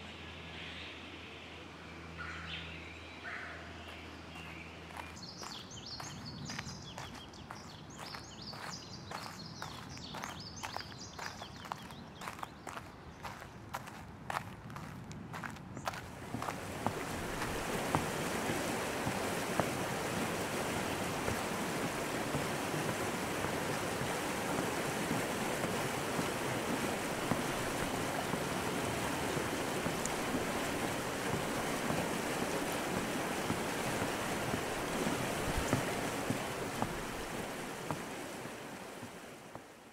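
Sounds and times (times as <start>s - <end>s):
stream water rushing: 15.9s - 39.9s.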